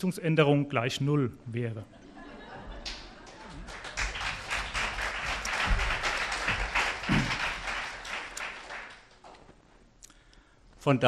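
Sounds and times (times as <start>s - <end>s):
audience applauding: 2.7s - 9.4s.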